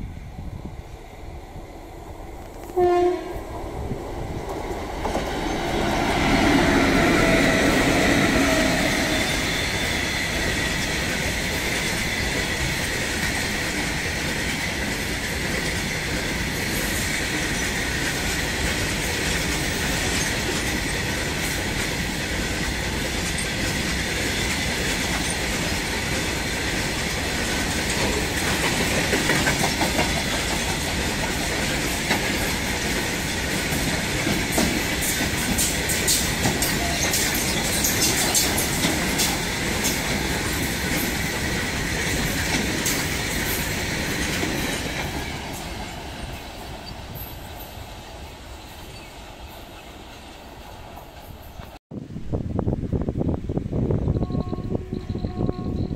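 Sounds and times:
locomotives passing: 0.9 - 51.8
electric locomotive horn: 2.6 - 3.5, 54.1 - 55.9
train wheels clattering on rails: 3.4 - 51.8.

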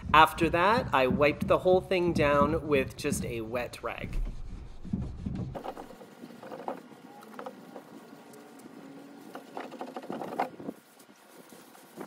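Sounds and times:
wet rag scrubbing wood: 5.5 - 12.0.

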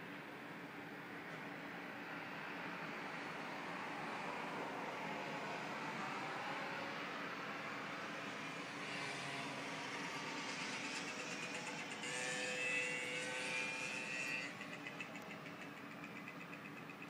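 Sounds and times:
distant road traffic: 0.0 - 17.0
vehicle passing: 3.4 - 16.6.

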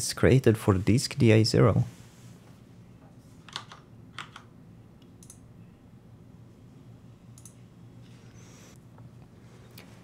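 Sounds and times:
low steady hum: 0.0 - 10.0
computer keys clicking: 3.5 - 5.4, 7.4 - 7.6.

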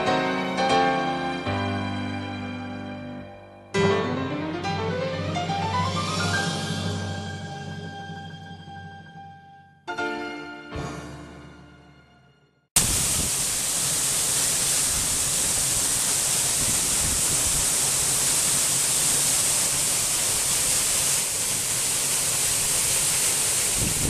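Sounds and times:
waterfall rushing into pool: 12.8 - 24.0.

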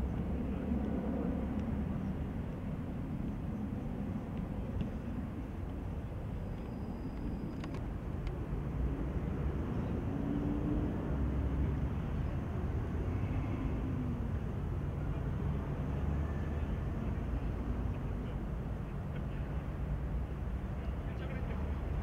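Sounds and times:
faint clicks: 6.6 - 8.4.

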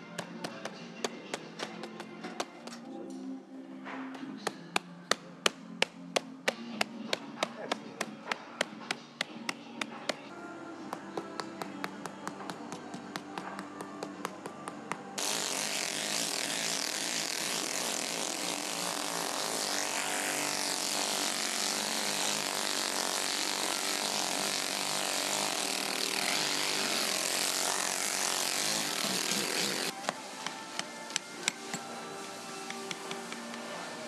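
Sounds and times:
music with light tapping: 0.0 - 15.2, 29.9 - 34.0.

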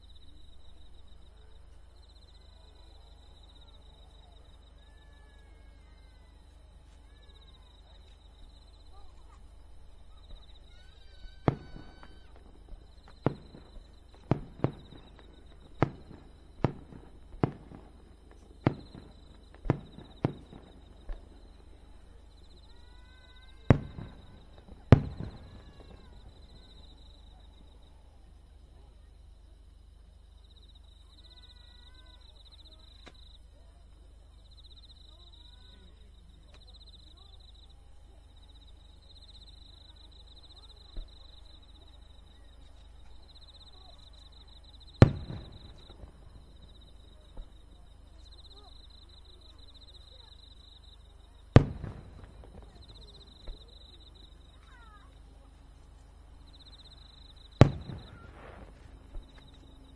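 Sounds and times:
insects chirping: 0.0 - 59.9
firework shells bursting: 9.3 - 22.7, 23.5 - 26.8, 44.9 - 47.6, 51.5 - 53.7, 57.5 - 59.9.

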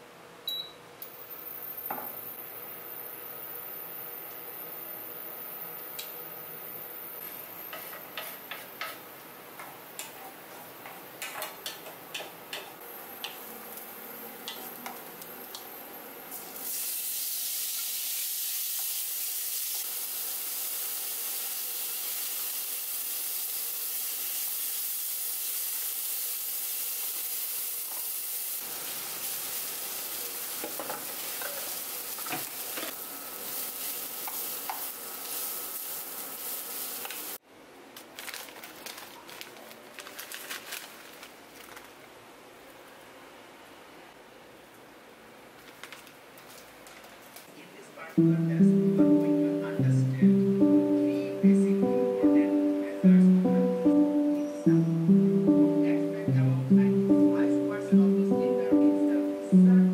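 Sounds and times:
food sizzling in frying pan: 12.9 - 37.4.

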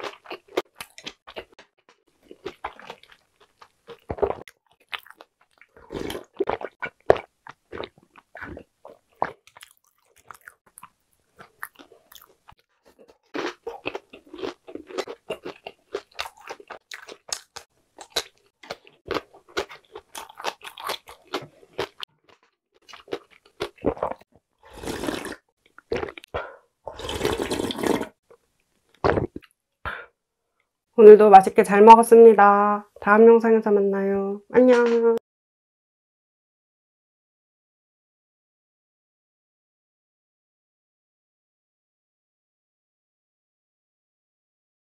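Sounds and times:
slurping and gulping broth: 0.0 - 22.0, 22.9 - 28.2
crunching and chewing: 0.0 - 26.3.

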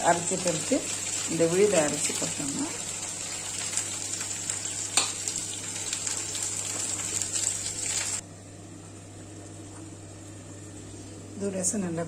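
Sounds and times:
food sizzling in oil: 0.0 - 8.2.

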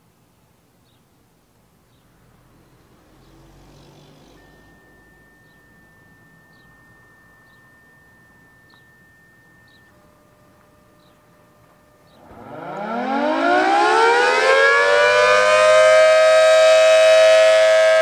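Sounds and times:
siren tones: 9.8 - 18.0.

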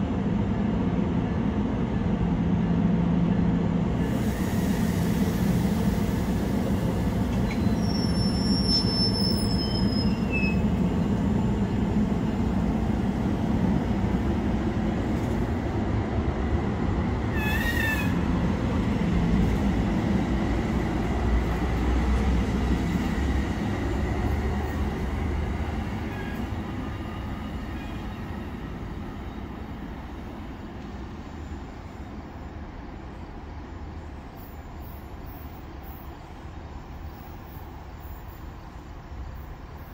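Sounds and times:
train wheels rumbling on rail: 0.0 - 39.9
high wheel squeal: 7.4 - 10.7, 17.3 - 18.2.

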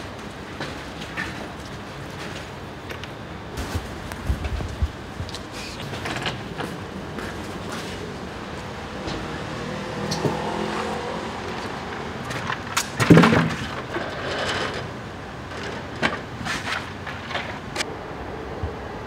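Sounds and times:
passing traffic: 5.0 - 19.0.

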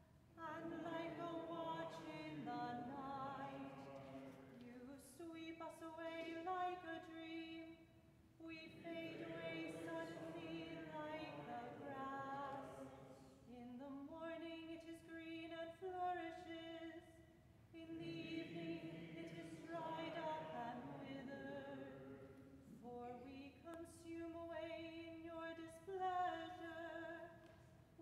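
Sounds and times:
woman chanting unaccompanied: 0.4 - 7.8, 8.4 - 17.0, 17.8 - 22.2.

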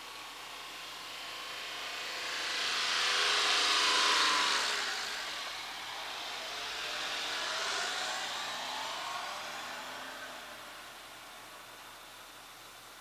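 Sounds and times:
vehicle passing: 2.1 - 11.2.

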